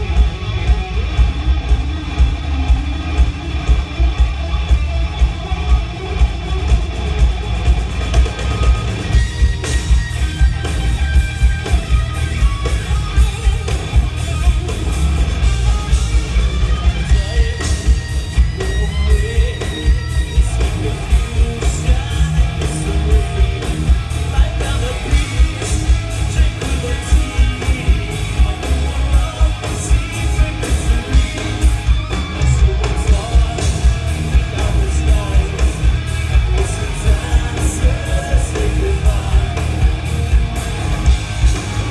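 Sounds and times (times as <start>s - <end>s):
electric guitars: 0.0s - 41.9s
pounding drum beat: 0.0s - 41.9s
person singing lead vocals: 17.0s - 31.8s, 32.4s - 40.3s.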